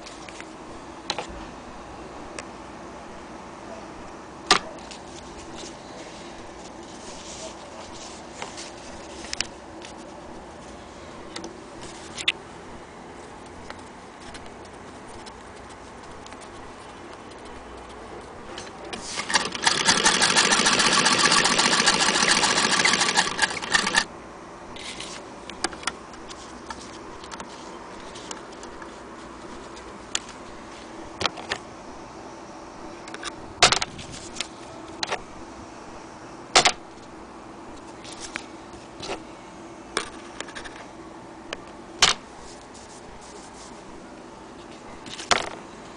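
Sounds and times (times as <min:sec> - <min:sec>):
sewing machine clatter: 0:19.0 - 0:24.0.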